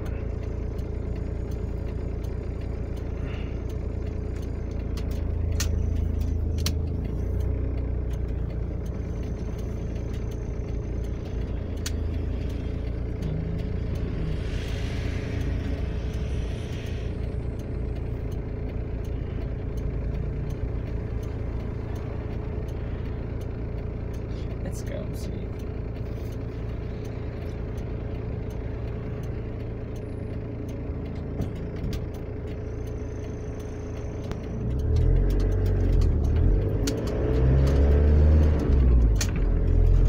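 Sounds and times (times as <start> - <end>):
car engine idling: 0.0 - 40.0
sharp clicks: 0.3 - 24.6, 25.5 - 40.0
traffic passing: 3.0 - 31.9
passing vehicle hiss: 14.0 - 17.3.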